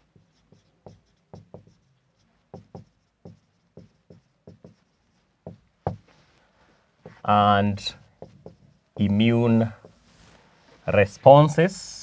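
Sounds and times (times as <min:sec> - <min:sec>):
marker pen writing on board: 0:00.0 - 0:06.1, 0:07.0 - 0:10.0.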